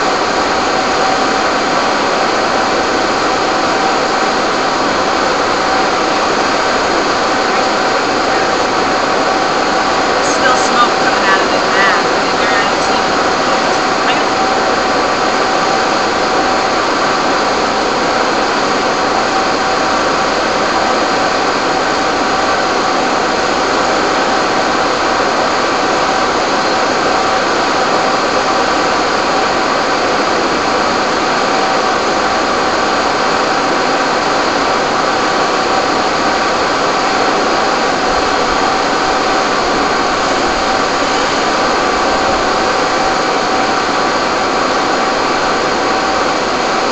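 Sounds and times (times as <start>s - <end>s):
pump engines droning: 0.0s - 46.9s
steady tones: 1.0s - 19.0s.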